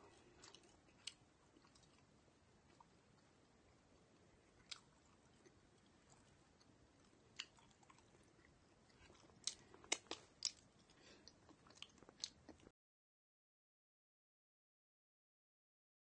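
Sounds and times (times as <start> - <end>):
soft chewing: 0.0 - 12.7
mouth clicks and crackles: 0.2 - 3.4, 4.3 - 12.7.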